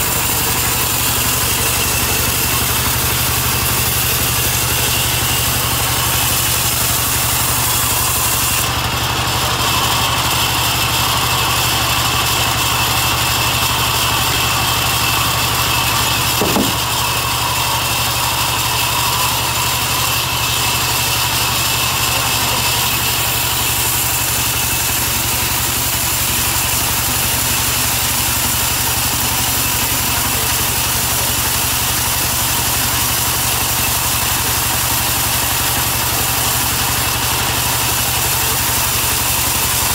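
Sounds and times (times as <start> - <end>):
band saw cutting timber: 0.0 - 39.9
short knock: 16.4 - 16.8.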